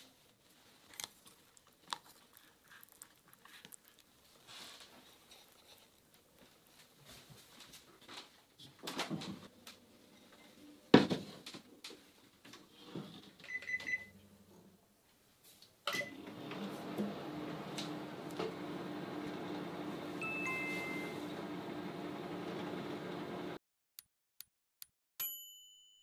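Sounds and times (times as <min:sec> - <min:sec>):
microwave oven humming: 0:15.9 - 0:23.6.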